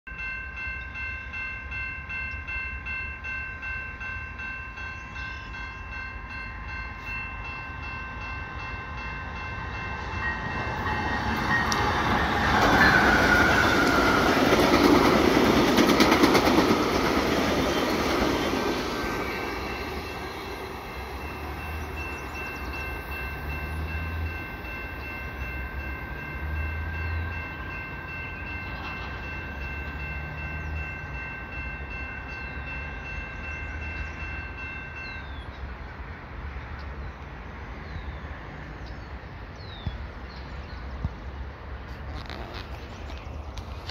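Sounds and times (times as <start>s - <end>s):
level-crossing bells ringing: 0.1s - 15.7s, 16.3s - 35.6s
passenger train rumbling past: 0.1s - 43.9s.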